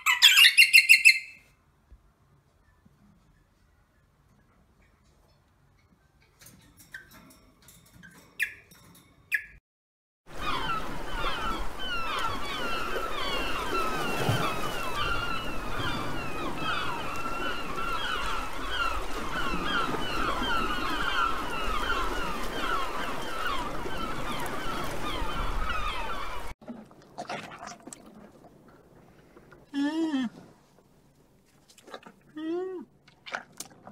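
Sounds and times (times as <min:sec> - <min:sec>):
flock of gulls calling: 0:10.3 - 0:26.5.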